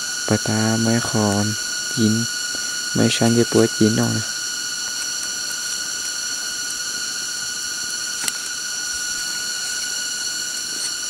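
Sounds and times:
high-pitched drone: 0.0s - 11.0s.

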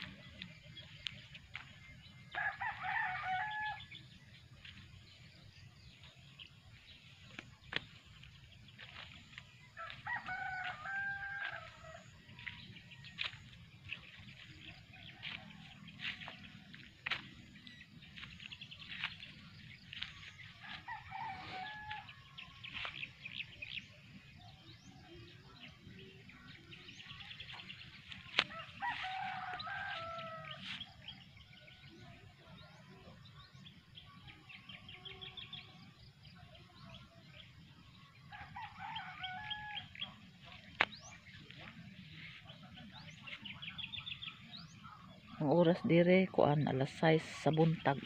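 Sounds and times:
small birds chirping: 0.0s - 48.0s
roosters crowing: 2.3s - 4.1s, 9.8s - 12.8s, 20.3s - 22.5s, 26.9s - 31.7s, 38.2s - 41.2s.

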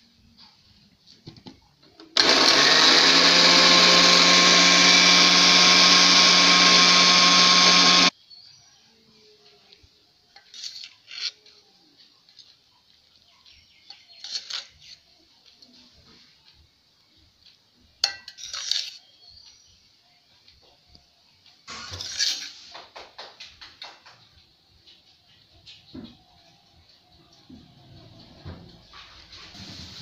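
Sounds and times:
electric blender running: 2.2s - 8.1s.

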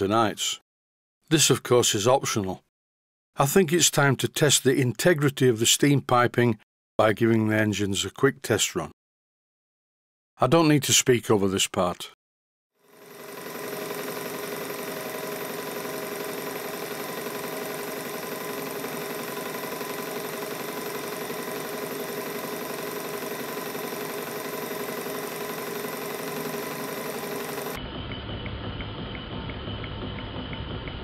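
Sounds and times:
model steam engines running: 12.9s - 31.0s.

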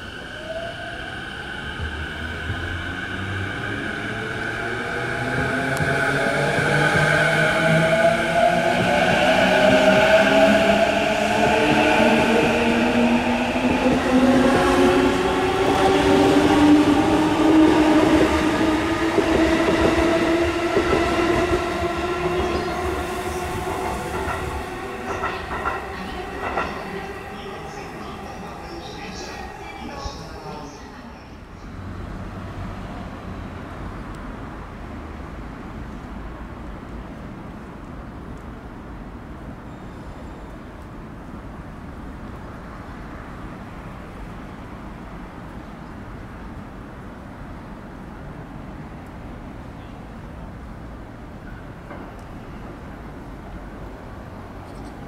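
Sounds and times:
wheels rumbling on rail: 1.8s - 30.2s.

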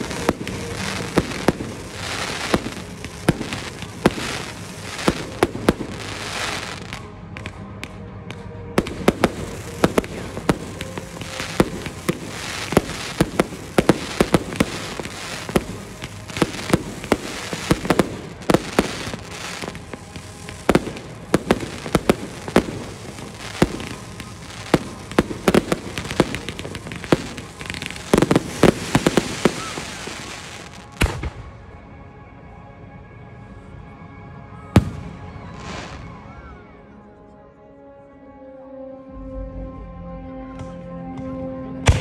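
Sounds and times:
fireworks launching and bursting: 0.0s - 8.0s, 8.8s - 31.5s.

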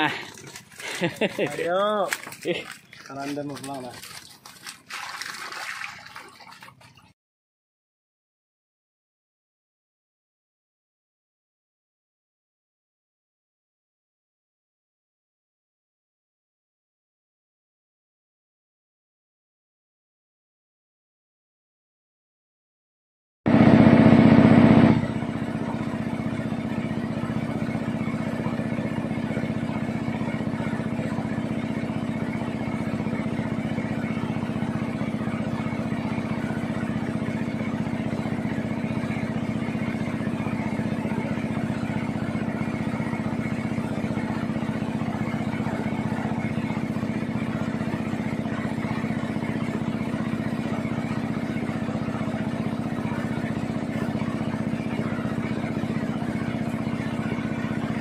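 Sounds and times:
water rushing along hull: 0.0s - 7.1s, 23.5s - 58.0s
boat engine running: 0.0s - 7.2s, 23.5s - 58.0s.

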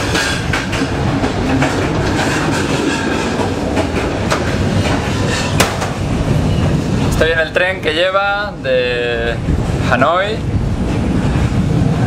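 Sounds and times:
wheels clickety-clack on track: 0.0s - 7.3s, 9.4s - 12.0s
train rumble inside carriage: 0.0s - 12.0s
sharp knock: 5.6s - 6.0s.

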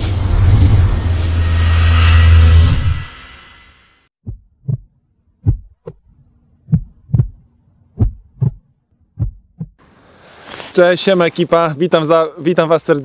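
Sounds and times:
rumble: 0.0s - 9.8s
heartbeat thumps: 4.2s - 6.0s, 6.6s - 9.8s.

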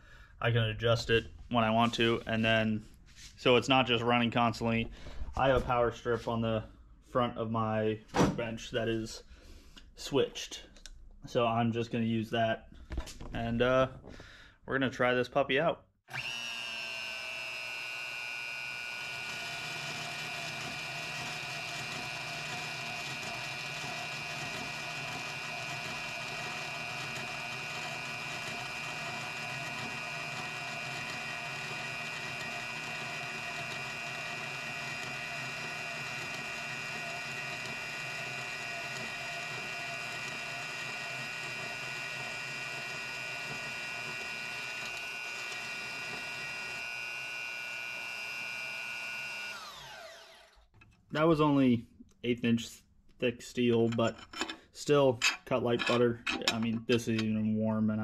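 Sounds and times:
bandsaw cutting steel: 16.1s - 50.7s.

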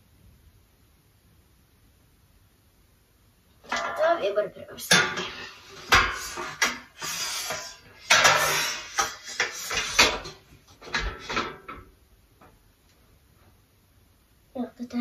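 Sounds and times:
metal shelf clanking and scraping: 3.7s - 11.9s.

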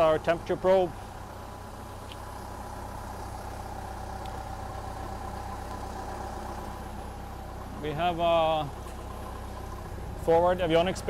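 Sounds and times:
constant machine whine: 0.0s - 11.0s
machinery low hum: 0.0s - 11.0s.

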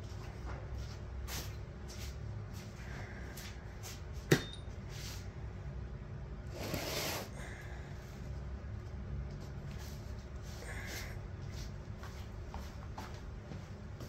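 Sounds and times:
low steady hum: 0.0s - 14.0s
rustling scrape: 6.5s - 7.3s.

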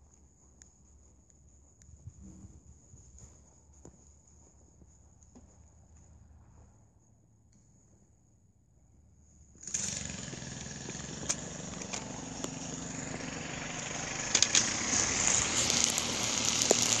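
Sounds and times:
motor running: 9.6s - 17.0s
sharp clicks: 14.3s - 14.8s.

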